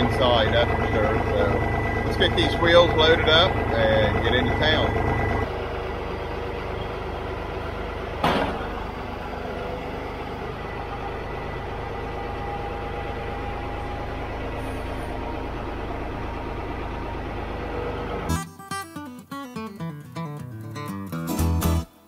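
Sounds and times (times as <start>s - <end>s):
tractor engine running: 0.0s - 18.6s
sharp metal clank: 8.2s - 8.7s.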